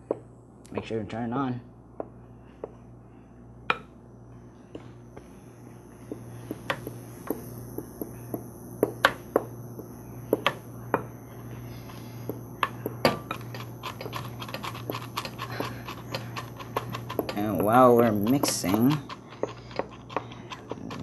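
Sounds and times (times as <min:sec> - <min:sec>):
low steady hum: 0:00.0 - 0:21.0
spoon stirring in glass bowl: 0:13.3 - 0:21.0.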